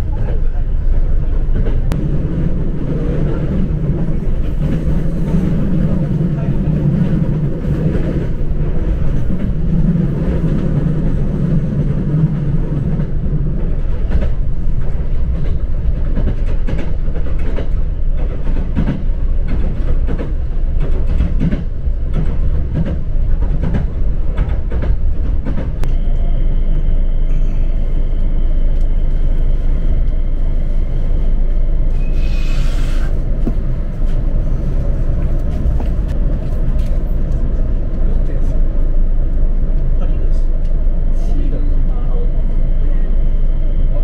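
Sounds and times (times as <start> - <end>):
train rumble: 0.0 - 44.0
rail-joint clicks: 11.9 - 26.3, 31.4 - 40.9.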